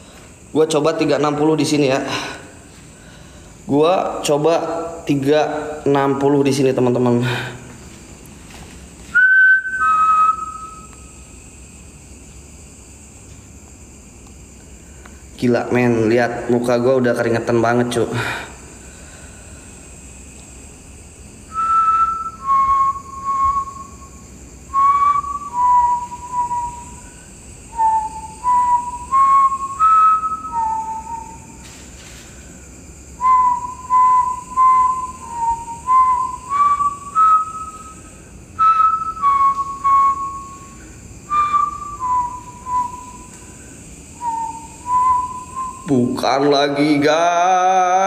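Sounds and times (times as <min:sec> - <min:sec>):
man whistling a slow tune: 0:09.1 - 0:11.2, 0:21.5 - 0:31.7, 0:33.2 - 0:46.0.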